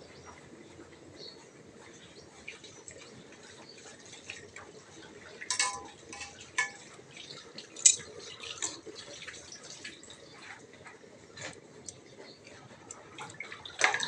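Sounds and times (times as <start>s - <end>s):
faint steady background noise: 0.0s - 14.0s
utensils clinking on cookware: 5.4s - 7.1s, 7.7s - 8.9s, 13.7s - 14.0s.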